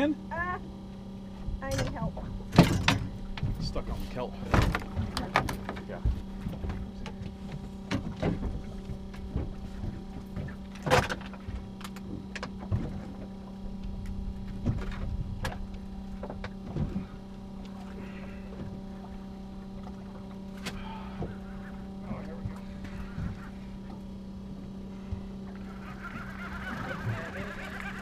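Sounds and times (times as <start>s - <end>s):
boat engine droning: 0.0s - 28.0s.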